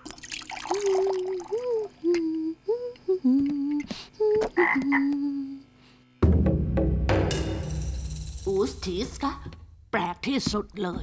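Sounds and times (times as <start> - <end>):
woman humming: 0.7 - 5.8.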